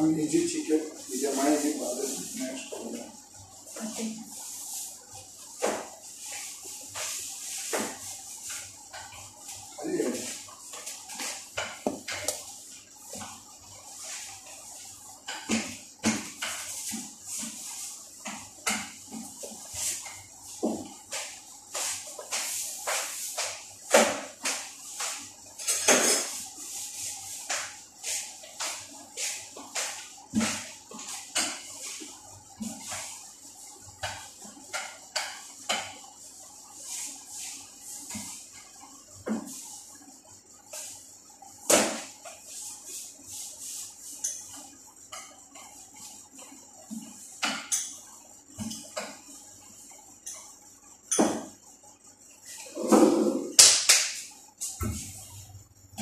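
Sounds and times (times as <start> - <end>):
rolling pin knocking and scraping: 10.9 - 12.5, 52.7 - 53.6
rolling pin on metal table: 14.0 - 33.2, 52.5 - 55.4.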